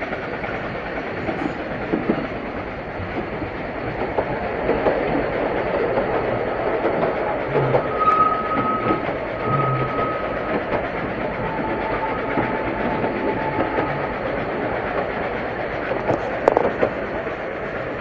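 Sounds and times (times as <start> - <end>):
train wheels rumbling on rail: 0.0 - 18.0
thin squealing tone: 7.5 - 15.0.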